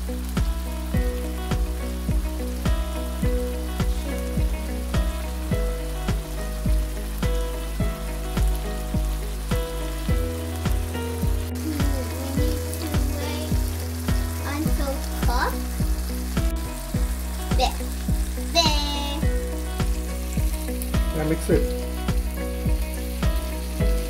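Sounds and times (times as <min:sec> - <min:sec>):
background music with steady beat: 0:00.0 - 0:24.0
onions sizzling in a frying pan: 0:00.0 - 0:24.0.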